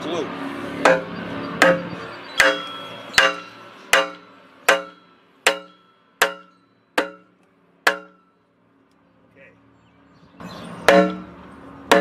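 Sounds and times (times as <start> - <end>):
hammer striking wooden block: 0.8 - 8.2, 10.9 - 11.3.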